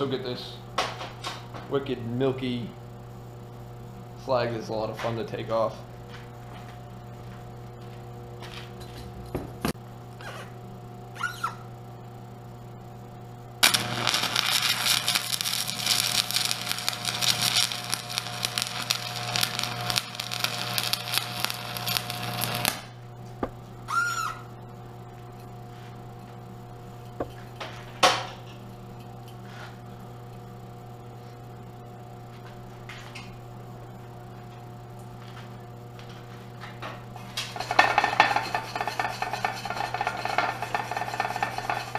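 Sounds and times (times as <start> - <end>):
steady hum: 0.0 - 41.9
welding arc crackling: 13.6 - 23.6, 37.2 - 41.9.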